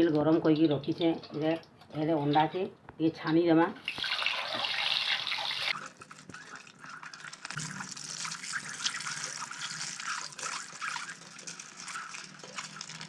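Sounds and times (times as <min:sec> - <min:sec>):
eggs sizzling in hot oil: 0:03.8 - 0:13.0.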